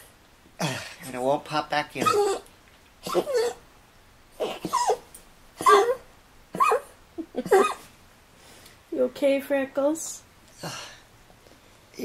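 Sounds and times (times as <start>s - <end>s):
pet crying high-pitched: 4.4s - 6.0s, 6.6s - 6.9s.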